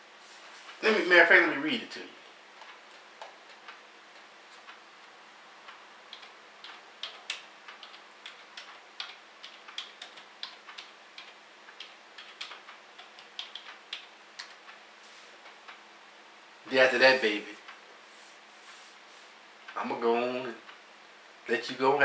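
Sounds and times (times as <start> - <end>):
typing on keys: 6.1 - 14.8.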